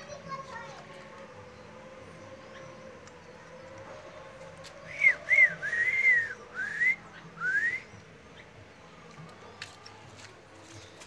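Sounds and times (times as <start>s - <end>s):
whistled notes: 4.9s - 8.0s.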